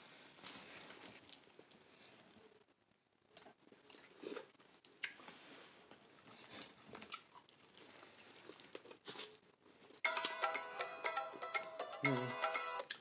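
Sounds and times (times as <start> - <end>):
biting and chewing: 5.9 - 9.4.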